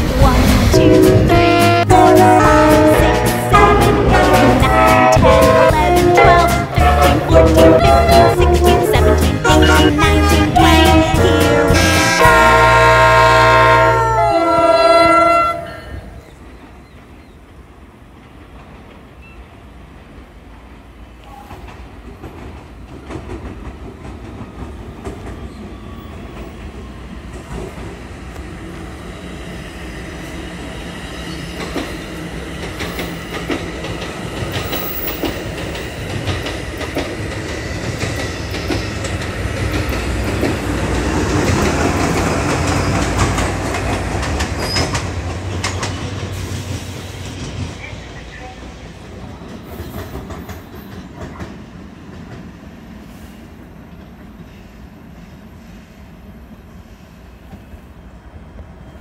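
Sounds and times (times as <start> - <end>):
train approaching: 0.0 - 59.0
wheels clicking over rail joints: 20.5 - 28.4, 31.5 - 47.8, 49.4 - 52.5.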